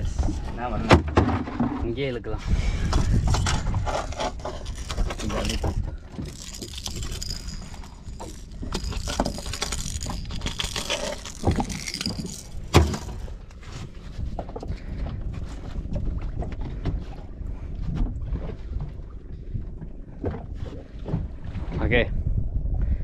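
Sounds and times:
fish handled on plastic board: 2.8s - 14.0s
metal lure hooks clinking: 4.6s - 13.3s.

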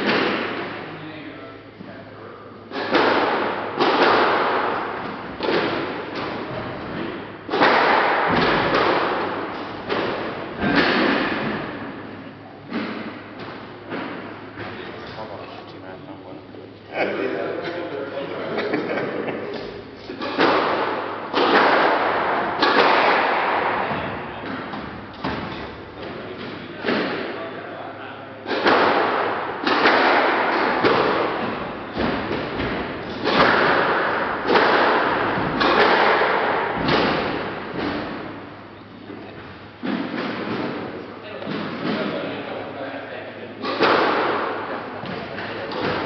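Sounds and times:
squash ball hits echoing: 0.0s - 0.9s, 2.7s - 14.8s, 19.6s - 27.6s, 28.4s - 42.4s, 43.5s - 46.0s.

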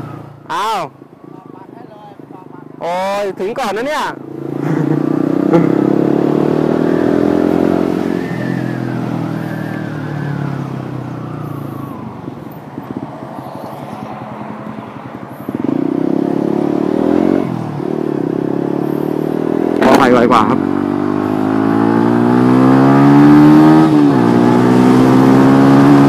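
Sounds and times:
motorcycle engine: 0.0s - 26.0s.

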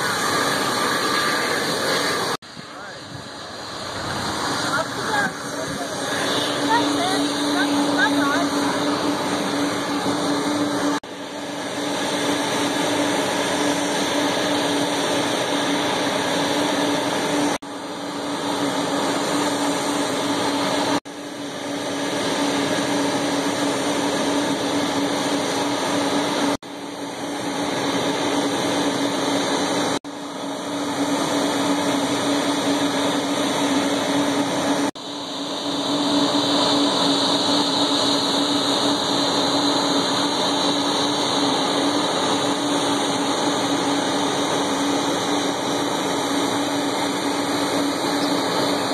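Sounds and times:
jet engines whining while taxiing: 0.0s - 48.9s.

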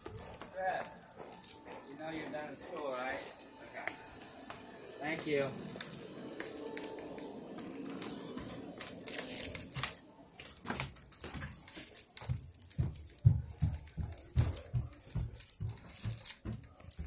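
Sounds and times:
footsteps on carpeted stairs: 6.1s - 9.0s, 10.4s - 17.0s.

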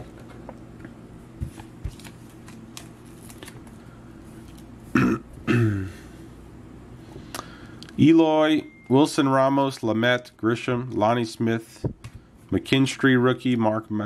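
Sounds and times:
trading cards rustling: 1.5s - 4.8s.

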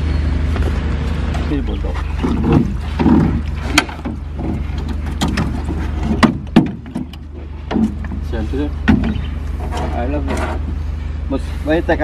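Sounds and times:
steady low hum: 0.0s - 12.0s
metal knocks and clanks: 1.4s - 10.8s.

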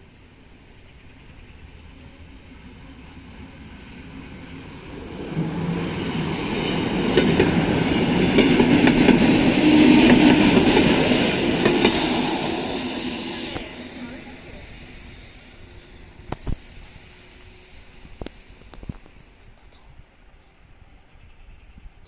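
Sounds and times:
train wheels clattering over rails: 4.0s - 13.8s.

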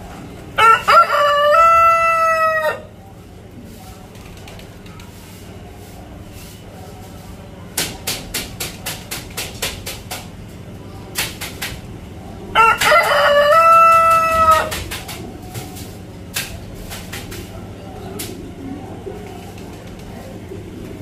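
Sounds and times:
rooster crowing: 0.6s - 2.9s, 12.5s - 14.8s.

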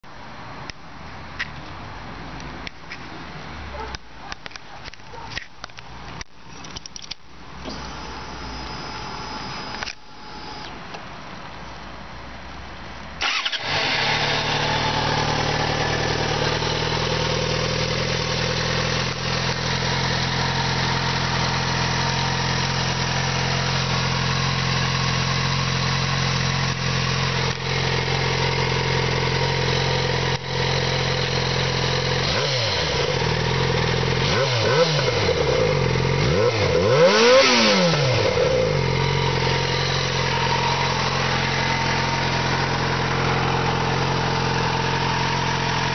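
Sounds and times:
engine throttle blips: 13.2s - 16.6s
motorcycle engine idling: 13.2s - 36.7s, 38.2s - 45.9s.

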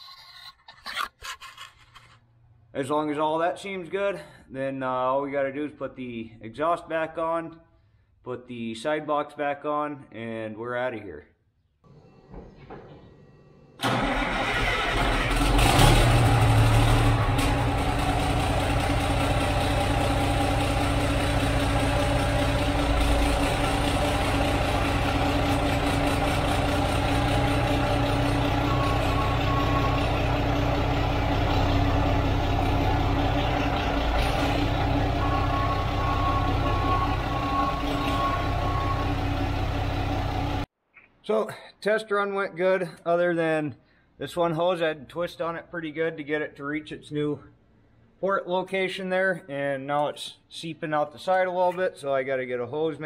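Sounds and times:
diesel truck engine idling: 13.8s - 40.7s.

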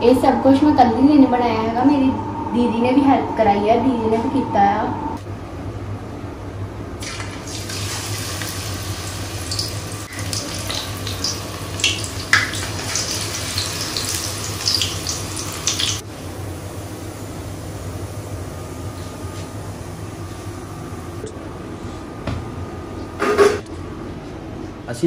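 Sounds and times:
low hum: 0.0s - 7.2s
batter frying in hot oil: 7.0s - 17.8s.

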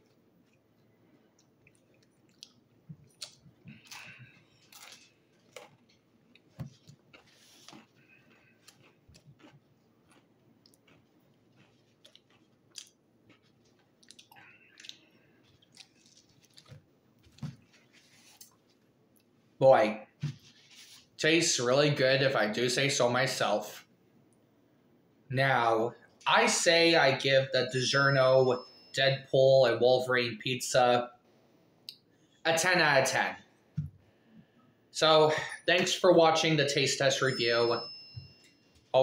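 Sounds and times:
chewing pizza: 0.0s - 19.4s
mouth clicks and smacks: 1.3s - 4.2s, 7.6s - 13.0s.

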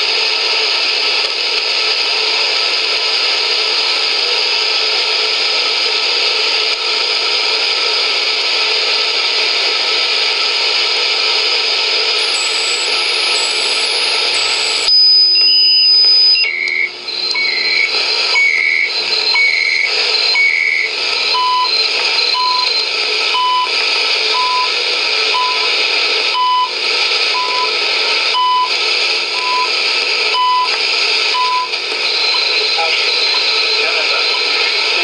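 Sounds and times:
radio static hiss: 12.0s - 16.5s, 27.6s - 35.0s
time signal ticking beeps: 12.2s - 23.7s, 25.3s - 25.7s, 30.3s - 34.5s.

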